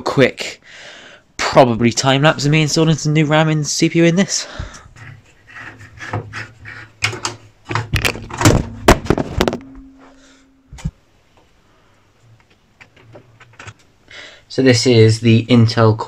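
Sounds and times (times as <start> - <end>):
low hum: 9.4 - 11.0.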